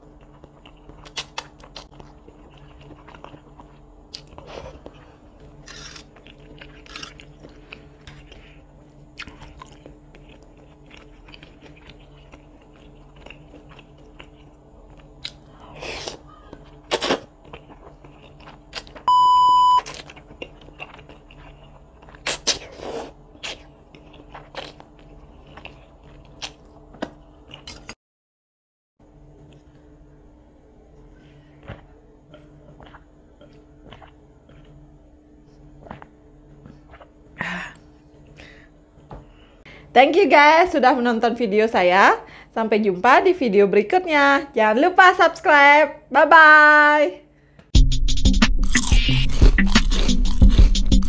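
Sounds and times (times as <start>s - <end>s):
person slurping and chewing: 0.2s - 8.6s, 9.2s - 19.0s, 19.8s - 26.6s, 31.6s - 34.7s, 48.6s - 51.0s
electronic beep: 19.1s - 19.8s.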